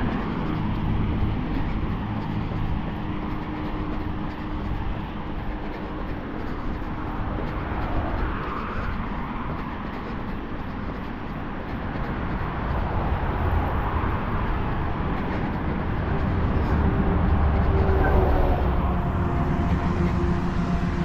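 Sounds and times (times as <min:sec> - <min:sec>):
rumble of passing vehicles: 0:00.0 - 0:21.0
engine humming: 0:11.3 - 0:21.0.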